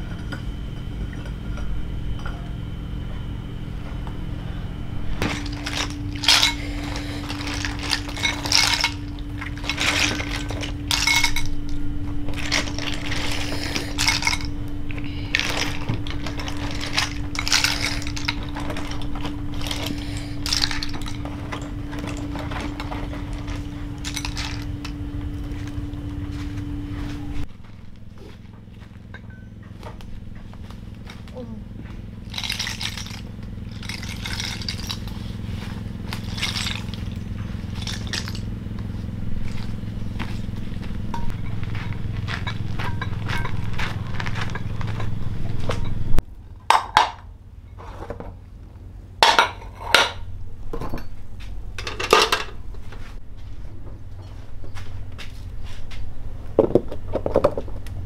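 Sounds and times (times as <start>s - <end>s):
low hum: 0.0s - 58.0s
metal kitchenware clattering: 5.2s - 24.8s, 41.1s - 46.0s, 49.2s - 51.2s, 51.8s - 52.6s.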